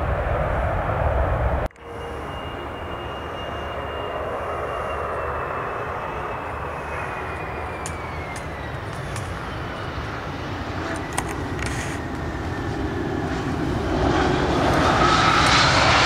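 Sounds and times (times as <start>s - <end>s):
jet engines whining: 0.0s - 16.0s.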